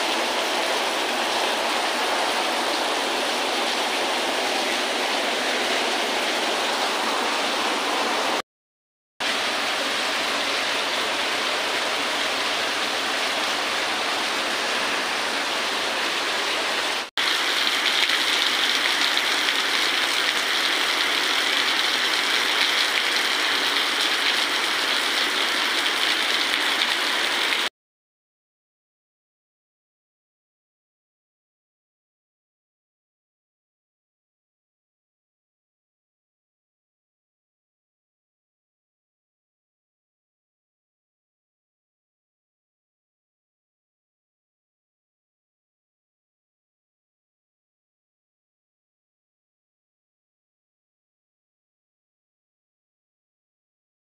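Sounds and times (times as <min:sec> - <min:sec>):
heavy rain: 0:00.0 - 0:08.4, 0:09.2 - 0:27.7.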